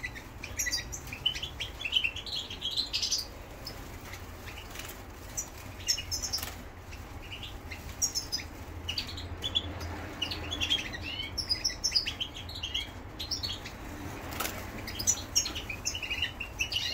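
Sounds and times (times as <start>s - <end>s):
goldfinch twittering: 0.0s - 13.8s, 14.8s - 16.9s
wing flutters: 3.5s - 7.2s, 14.2s - 15.0s.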